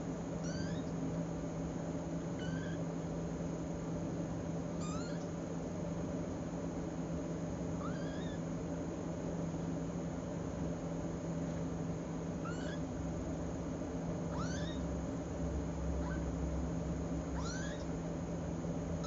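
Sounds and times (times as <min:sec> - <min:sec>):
steady low hum: 0:00.0 - 0:19.0
kittens mewing: 0:00.4 - 0:01.0, 0:02.4 - 0:02.9, 0:04.8 - 0:05.4, 0:07.8 - 0:08.5, 0:12.4 - 0:12.9, 0:14.3 - 0:14.9, 0:16.0 - 0:16.3, 0:17.4 - 0:17.9.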